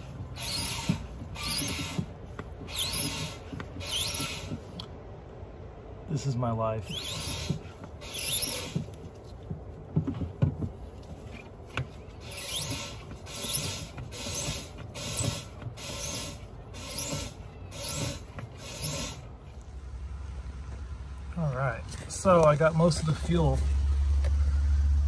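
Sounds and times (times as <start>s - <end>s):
hand pump rasping swish: 0.0s - 4.8s, 6.8s - 19.6s
knocks and rubs: 0.0s - 4.8s, 6.8s - 19.2s.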